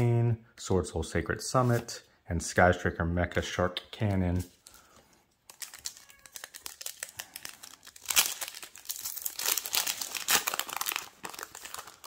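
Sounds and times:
foil wrapper crinkling and tearing: 4.7s - 12.0s.

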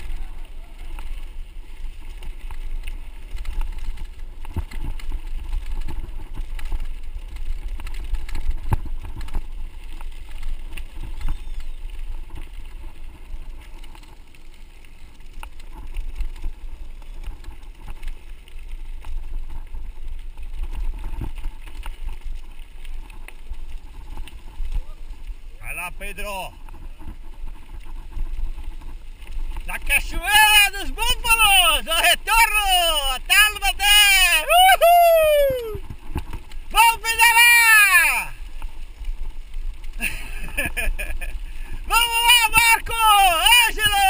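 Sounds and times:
wind rumble on microphone: 0.0s - 32.0s, 34.1s - 37.1s
bike rattling over gravel: 0.0s - 44.0s.

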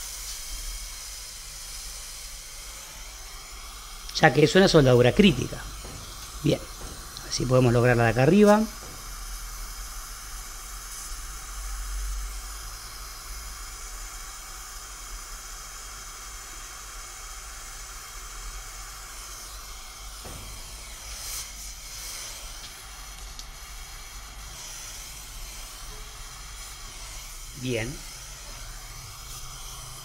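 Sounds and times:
torch flame hissing: 0.0s - 30.0s.

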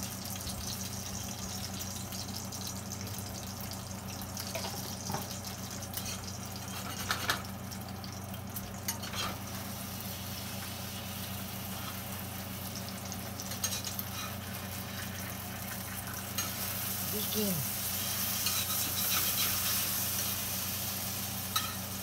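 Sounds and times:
dough sizzling in frying pan: 0.0s - 22.0s
fork clinking against pan: 21.5s - 21.8s.

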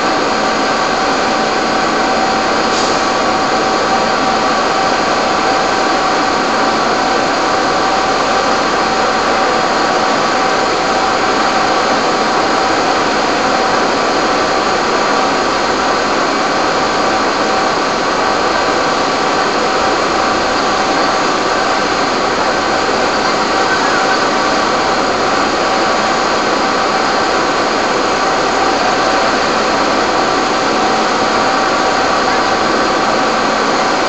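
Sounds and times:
fire engine pumps droning: 0.0s - 34.0s
whining tones: 18.7s - 34.0s.

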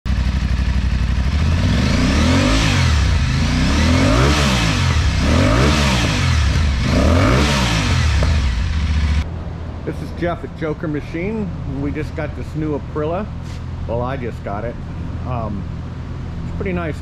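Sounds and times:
motorcycle engine revving: 0.1s - 9.3s.

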